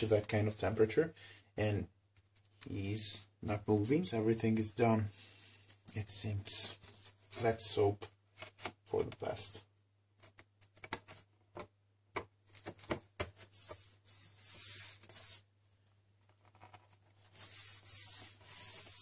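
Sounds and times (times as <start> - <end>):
hands rubbing on metal panel: 13.4 - 15.4, 16.6 - 19.0.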